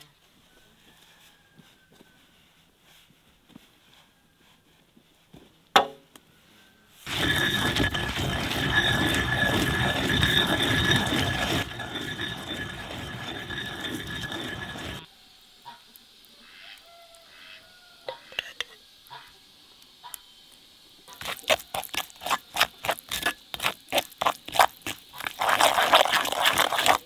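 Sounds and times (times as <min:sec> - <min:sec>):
sharp knock: 0:05.8 - 0:06.0
pestle grinding in stone mortar: 0:07.1 - 0:15.1, 0:21.1 - 0:27.0.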